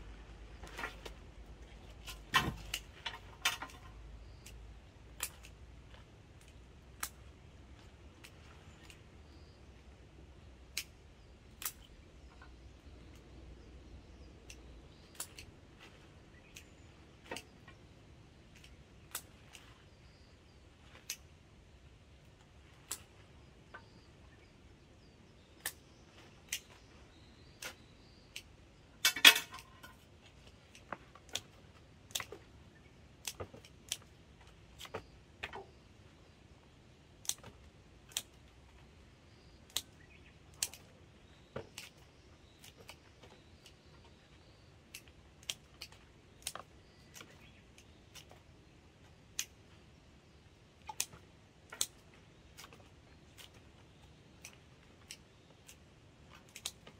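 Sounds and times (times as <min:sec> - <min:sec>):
pruning shears snipping stems: 0:02.0 - 0:05.6, 0:10.7 - 0:12.3, 0:14.1 - 0:17.8, 0:21.0 - 0:21.4, 0:25.6 - 0:26.9, 0:27.5 - 0:32.4, 0:33.2 - 0:35.7, 0:37.2 - 0:38.6, 0:39.6 - 0:44.2, 0:44.8 - 0:48.4, 0:50.8 - 0:56.9.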